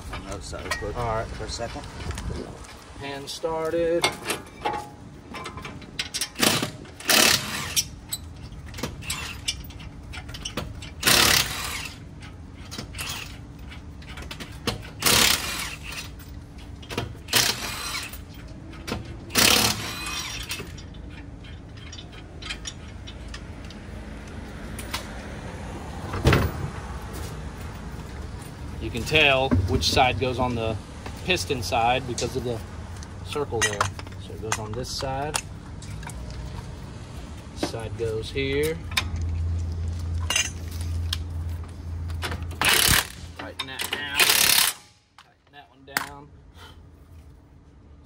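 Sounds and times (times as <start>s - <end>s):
tools clinking and knocking: 0.0s - 1.8s, 3.9s - 23.8s, 33.3s - 36.3s, 38.5s - 41.2s
pneumatic impact wrench bursts: 6.2s - 8.0s, 10.8s - 12.0s, 14.8s - 16.2s, 17.3s - 18.3s, 19.3s - 20.8s, 42.5s - 43.4s, 44.0s - 45.0s.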